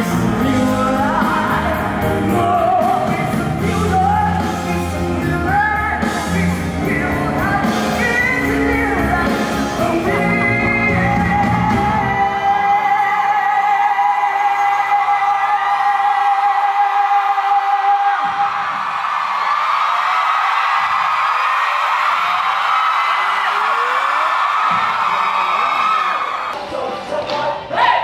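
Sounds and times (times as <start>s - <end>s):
loud band playing: 0.0s - 15.4s
man singing into a microphone: 0.0s - 18.6s
crowd yelling: 15.4s - 27.0s.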